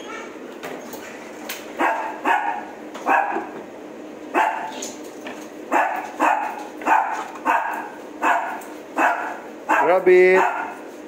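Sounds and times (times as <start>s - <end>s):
dog barking: 1.8s - 3.5s, 4.3s - 4.8s, 5.7s - 10.8s.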